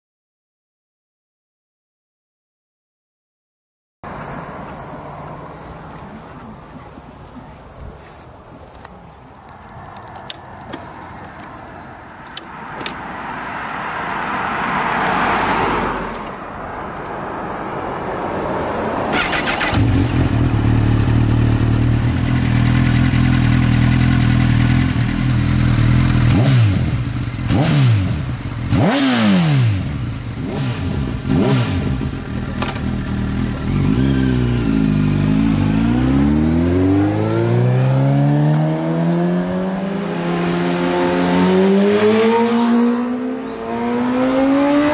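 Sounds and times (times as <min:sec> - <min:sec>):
motorcycle engine revving: 0:19.1 - 0:44.9.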